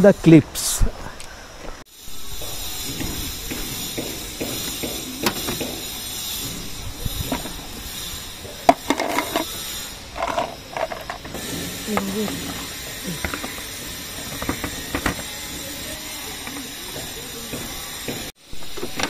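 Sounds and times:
metal scraping on plastic: 3.0s - 17.6s.

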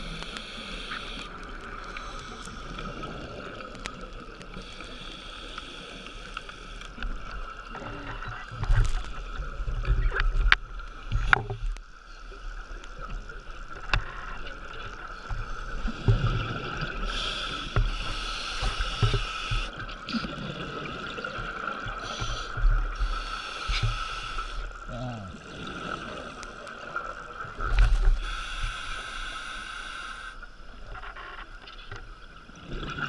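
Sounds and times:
exhaled bubbles rumbling: 13.2s - 17.4s, 18.9s - 23.9s
diver breathing through regulator: 17.0s - 19.8s, 22.0s - 24.7s, 28.1s - 30.4s.

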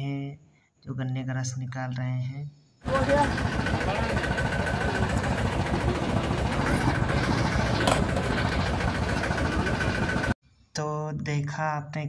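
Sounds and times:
juice crusher motor droning: 2.8s - 10.4s.

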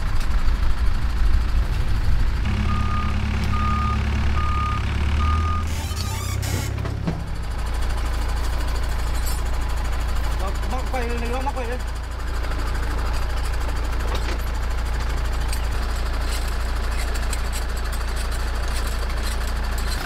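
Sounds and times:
truck engine running: 0.0s - 20.0s
reversing beeps: 2.6s - 6.1s.

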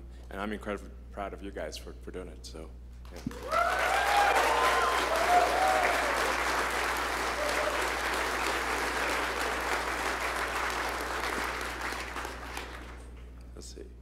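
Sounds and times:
crowd applauding: 3.2s - 13.2s
crowd cheering and whooping: 3.3s - 11.3s.

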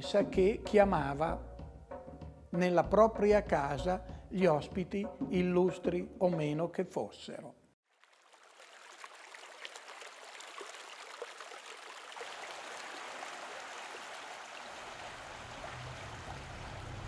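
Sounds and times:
running water rushing: 7.9s - 17.0s.

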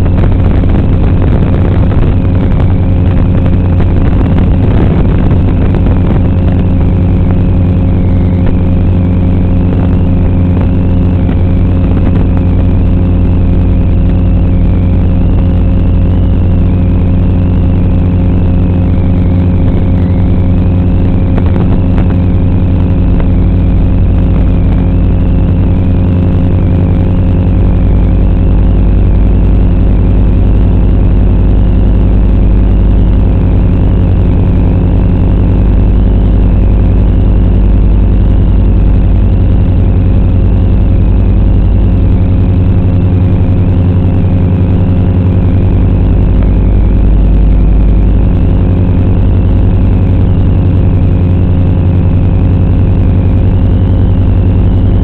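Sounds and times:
quadcopter motors humming: 0.0s - 29.4s
high whine: 0.0s - 55.0s.

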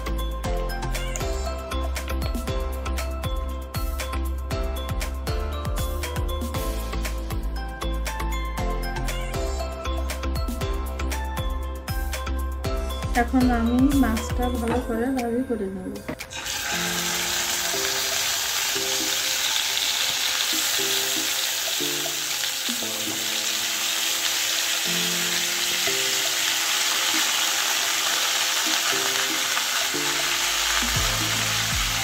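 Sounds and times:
fish frying in hot oil: 16.3s - 32.0s.

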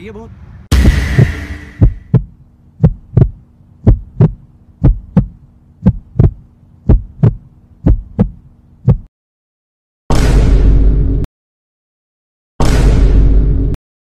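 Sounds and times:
low steady hum: 0.0s - 9.1s
heartbeat thumps: 0.7s - 9.1s.

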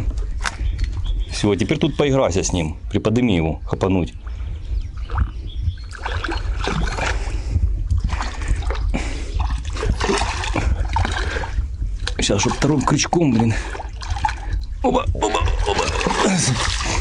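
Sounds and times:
low rumble: 4.2s - 12.9s
fish splashing in water: 8.0s - 13.0s, 15.3s - 17.0s.

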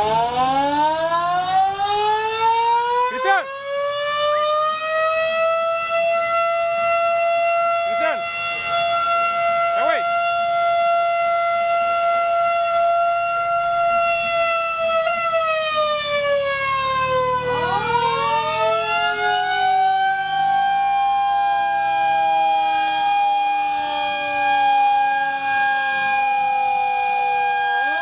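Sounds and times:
second siren rising: 0.0s - 28.0s
siren wailing: 0.0s - 28.0s
vehicle passing rumble: 16.2s - 20.2s.

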